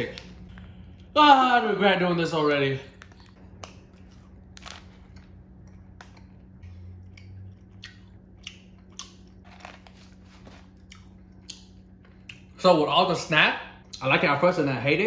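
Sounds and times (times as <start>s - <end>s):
person chewing gummy candy: 2.9s - 12.6s.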